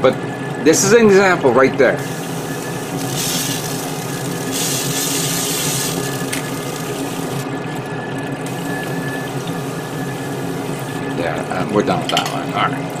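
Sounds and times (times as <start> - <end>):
spray booth water curtain and fans: 1.9 - 7.5, 8.4 - 11.4
aerosol spray can hissing: 2.0 - 3.9, 4.5 - 6.2.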